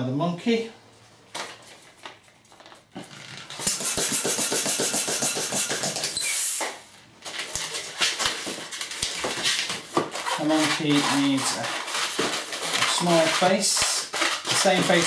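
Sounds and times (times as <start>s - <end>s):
balloon rubbing and squeaking: 3.0s - 6.7s, 10.1s - 15.0s
hand pump rushing air: 3.6s - 6.6s.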